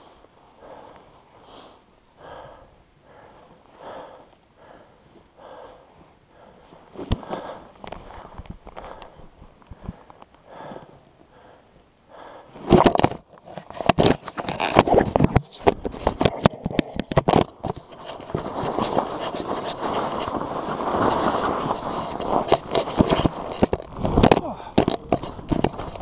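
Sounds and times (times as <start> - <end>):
fabric rubbing on microphone: 14.0 - 26.0.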